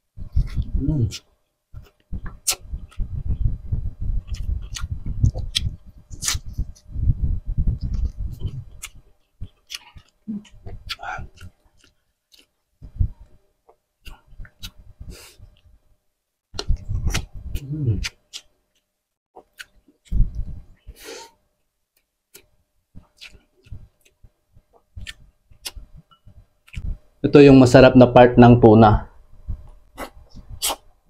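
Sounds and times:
wet chewing with sharp clicks: 7.8s - 12.5s, 22.0s - 25.8s, 26.6s - 26.9s.

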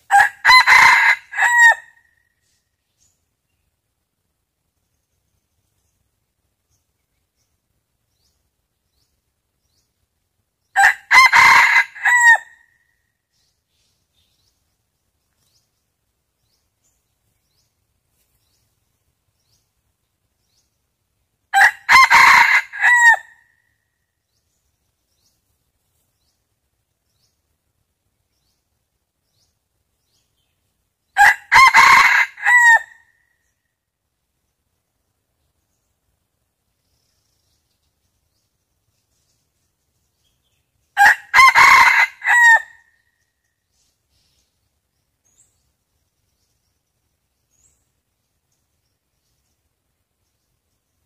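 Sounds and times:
rooster crowing: 0.1s - 2.0s, 10.8s - 12.6s, 21.5s - 23.4s, 31.2s - 33.0s, 41.0s - 42.8s.

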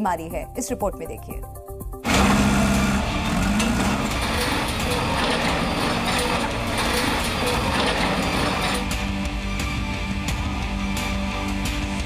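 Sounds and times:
heavy machinery rumbling: 2.0s - 9.0s.

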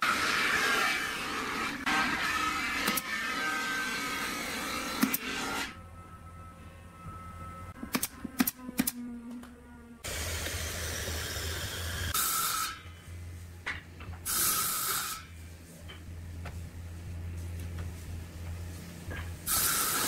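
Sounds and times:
low hum: 5.7s - 12.2s, 12.8s - 14.3s, 15.3s - 19.5s
air blasts: 19.5s - 20.0s
compressed air hissing: 19.5s - 20.0s.

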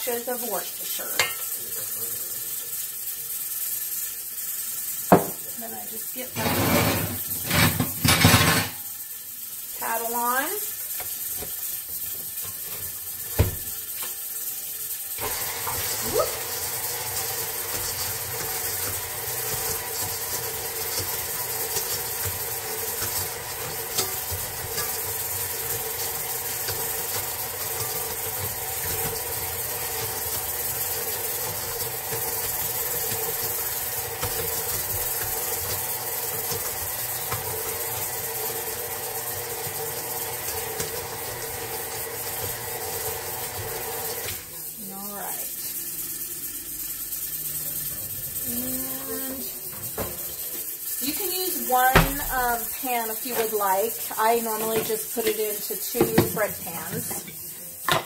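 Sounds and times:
beater mixing meat mixture: 5.1s - 8.6s, 15.2s - 46.0s, 47.4s - 58.0s
stand mixer motor hum: 15.2s - 44.4s.

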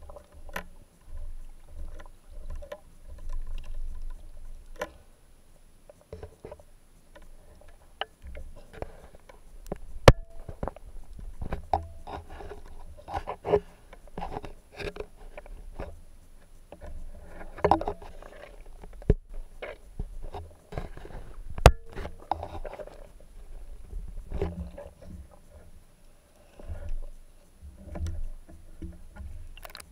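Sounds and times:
underwater handling scrapes and knocks: 0.0s - 5.1s, 5.9s - 25.8s, 26.4s - 29.9s.

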